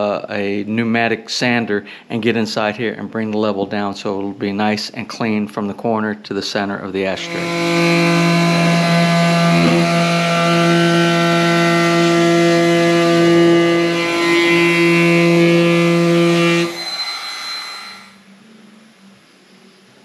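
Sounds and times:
wood router cutting: 7.0s - 18.2s.

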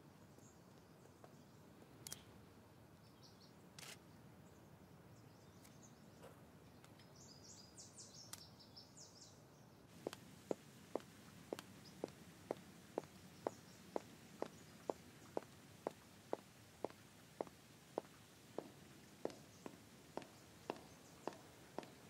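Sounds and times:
faint bird chirps: 0.1s - 2.4s, 3.0s - 17.0s
high-heeled shoes on stone: 10.0s - 22.0s.

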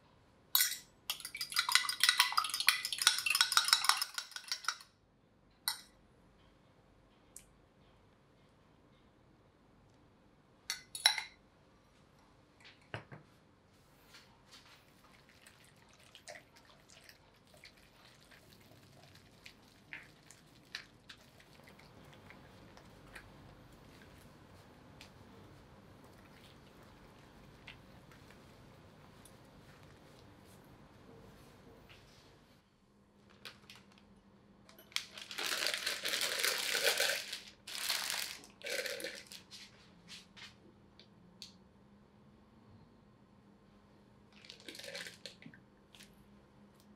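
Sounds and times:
whisk clicking in wet dough: 1.1s - 4.8s
plastic piping bag crinkling: 33.2s - 34.1s, 34.8s - 39.5s.

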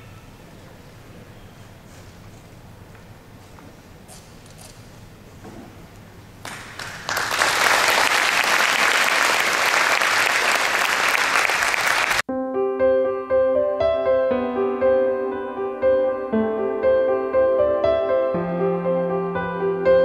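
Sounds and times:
audience applause: 6.5s - 12.2s
piano music: 12.2s - 20.0s.

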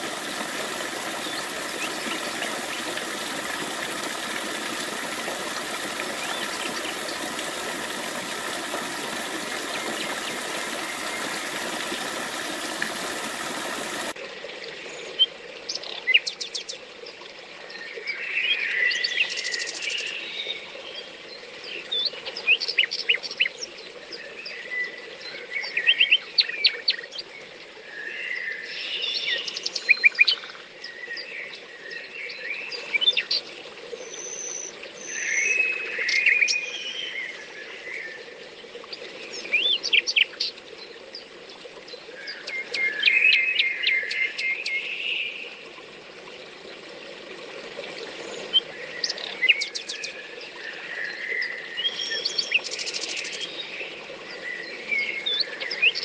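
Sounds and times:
songbirds chirping: 0.0s - 14.1s
waterfall splashing into pool: 0.0s - 14.2s
faint running water: 0.0s - 56.0s.

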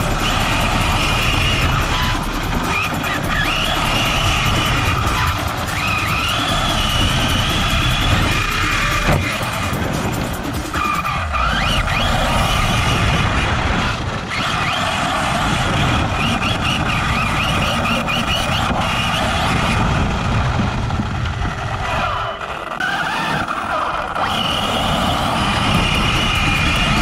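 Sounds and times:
electric motor whine: 0.0s - 27.0s.

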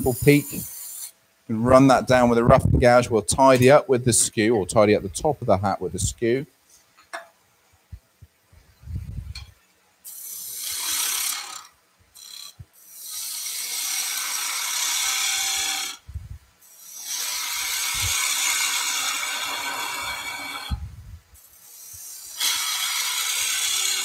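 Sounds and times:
chisel shearing wood on a lathe: 10.4s - 16.0s, 16.8s - 20.8s, 21.8s - 24.0s.

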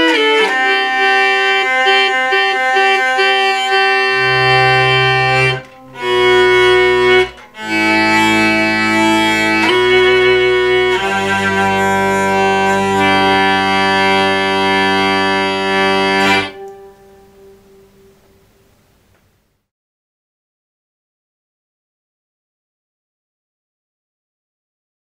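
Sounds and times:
hurdy-gurdy sustained notes: 0.0s - 18.6s.

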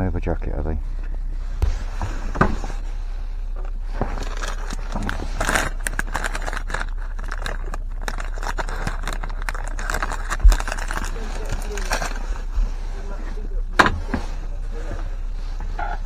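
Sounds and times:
steady low hum: 0.0s - 16.0s
plastic packet crinkling: 4.1s - 12.3s.

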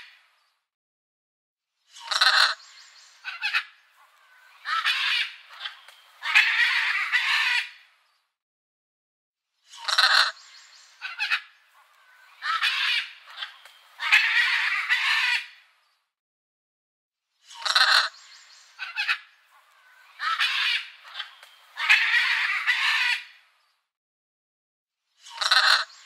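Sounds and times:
macaws squawking: 2.0s - 7.8s, 9.8s - 15.6s, 17.6s - 23.4s, 25.3s - 26.0s.

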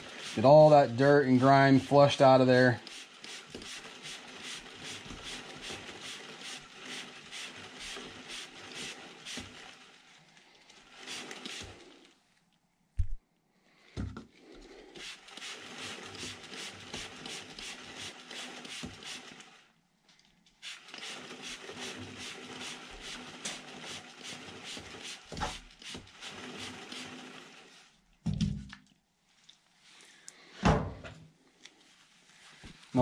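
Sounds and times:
chain flushing hiss with clicking: 2.7s - 12.2s, 14.8s - 19.7s, 20.5s - 27.6s.

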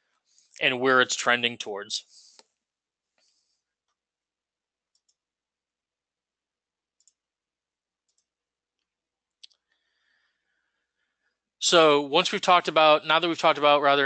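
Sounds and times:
computer mouse clicks: 4.9s - 5.2s, 7.0s - 7.2s, 8.0s - 8.3s.

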